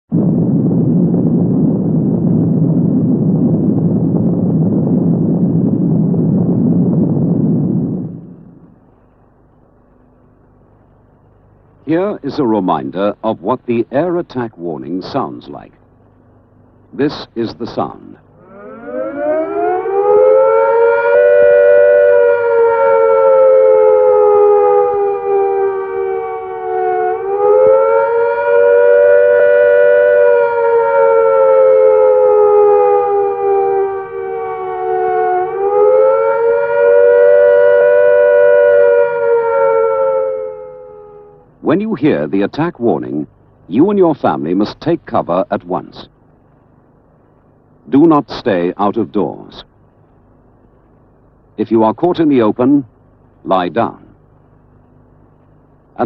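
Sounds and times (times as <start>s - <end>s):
explosion low rumble: 0.1s - 8.9s
air raid siren wailing: 0.1s - 9.0s, 18.3s - 42.3s.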